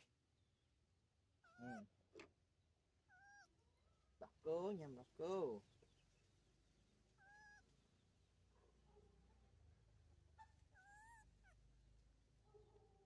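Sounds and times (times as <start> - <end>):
baby monkey squeaking: 3.1 - 3.5, 7.2 - 7.6, 10.4 - 11.6.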